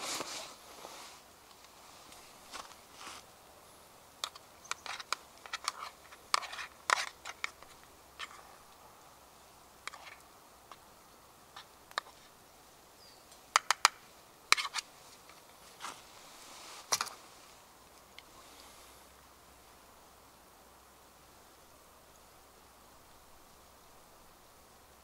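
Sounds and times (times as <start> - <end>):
sharp clicks and taps: 13.5 - 14.0.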